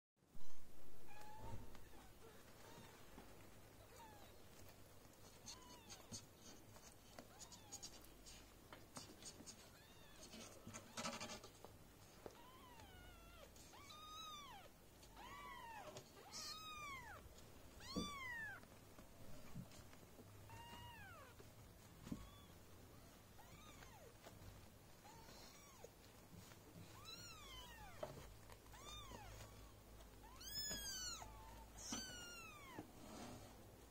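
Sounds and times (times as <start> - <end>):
soft scratching and rustling: 0.4 - 33.9
kittens mewing: 12.3 - 18.6.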